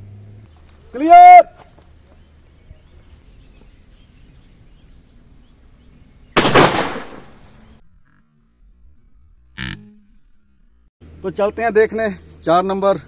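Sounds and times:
shotgun shot: 0:06.4 - 0:07.6.

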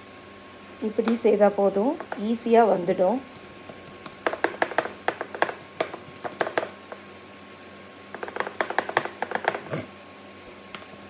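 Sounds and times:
fingers patting dough: 0:03.3 - 0:07.1, 0:08.1 - 0:09.8.

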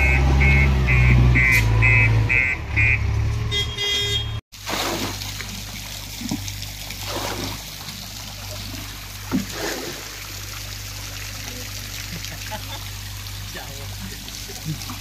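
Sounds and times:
water splashing into water: 0:04.5 - 0:15.0.

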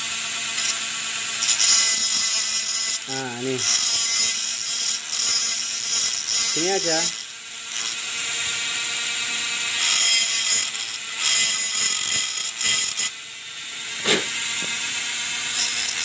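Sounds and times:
metal tool scraping plastic: 0:09.8 - 0:13.1, 0:15.5 - 0:16.0.

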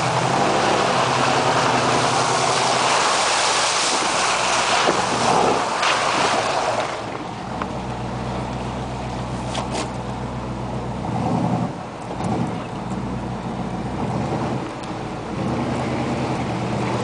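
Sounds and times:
tyres churning through slush: 0:00.0 - 0:07.5
truck engine low hum: 0:00.0 - 0:17.0.

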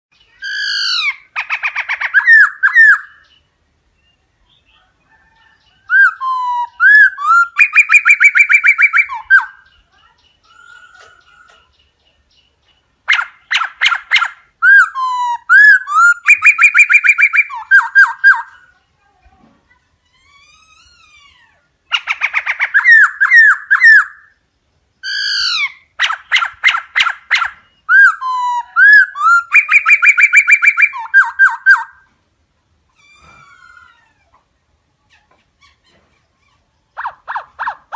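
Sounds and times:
bird singing whistles and trills: 0:00.2 - 0:03.4, 0:05.4 - 0:09.8, 0:13.1 - 0:18.5, 0:21.9 - 0:24.4, 0:25.0 - 0:32.0.

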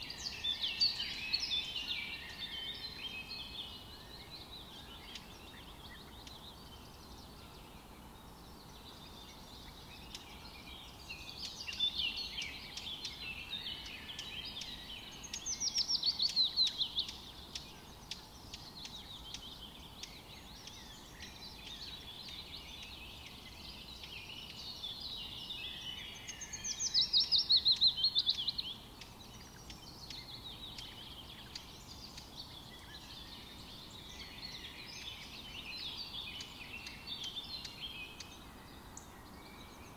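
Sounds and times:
faint steady hiss: 0:00.0 - 0:39.9
songbirds chirping: 0:00.0 - 0:39.9.

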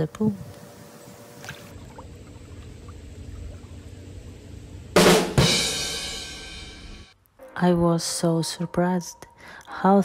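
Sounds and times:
low steady rumble: 0:00.0 - 0:09.4
music: 0:04.9 - 0:10.0
loud drum hits: 0:05.0 - 0:07.1.

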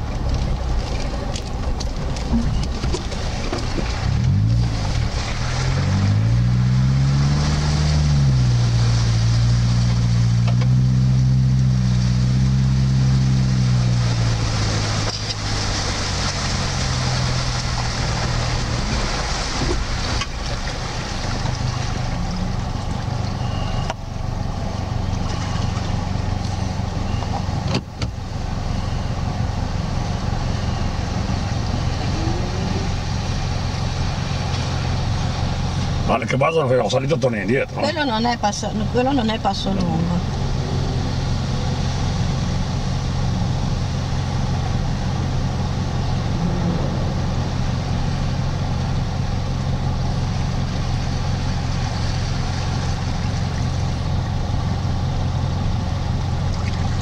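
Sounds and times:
off-road engine revving: 0:00.0 - 0:57.0.

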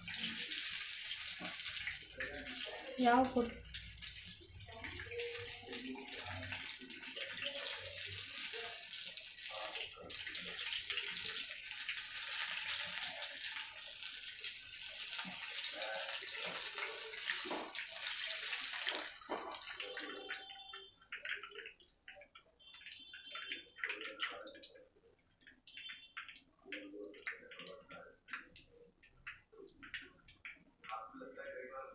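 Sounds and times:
food deep-frying in oil: 0:00.0 - 0:31.5
spoon scraping and tapping pan: 0:16.4 - 0:24.1.

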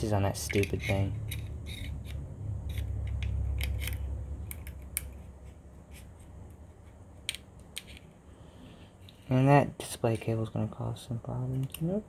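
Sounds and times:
small clicks and scrapes: 0:00.4 - 0:08.2.

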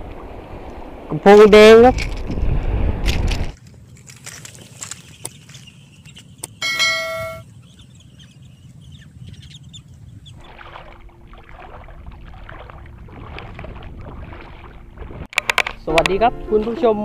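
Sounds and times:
bright bell ding: 0:06.6 - 0:07.4.

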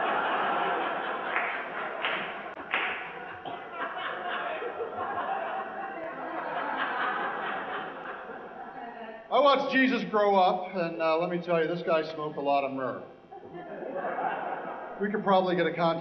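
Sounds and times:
audience laughing: 0:00.0 - 0:09.4, 0:13.4 - 0:15.9.

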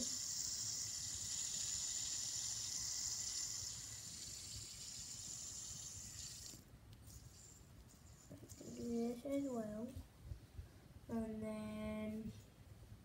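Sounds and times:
fidget spinner whirring: 0:00.0 - 0:09.5.

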